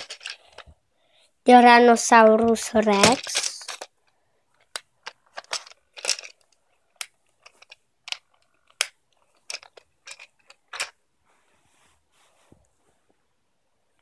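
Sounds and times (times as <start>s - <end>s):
plastic toys clattering: 0.0s - 0.8s, 1.5s - 11.0s
rustling: 0.0s - 0.8s, 2.6s - 13.2s.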